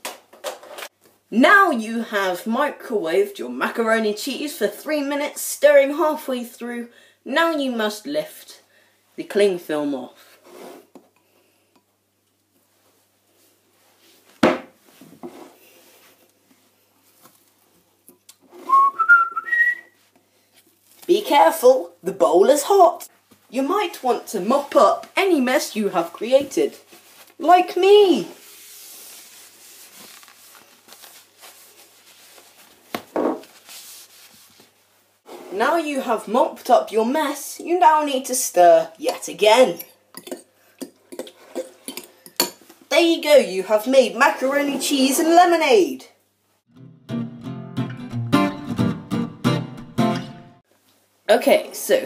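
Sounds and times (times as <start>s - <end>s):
faint rustling and handling: 10.2s - 18.8s, 20.0s - 21.2s, 23.1s - 35.6s
hand rubbing tabletop: 28.1s - 35.6s
cling film peeling off bowl: 28.5s - 34.5s.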